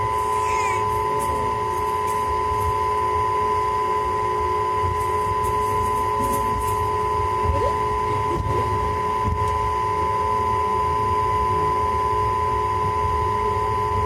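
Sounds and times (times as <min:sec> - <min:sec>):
train low rumble: 0:00.0 - 0:03.0
steady hum: 0:00.0 - 0:14.0.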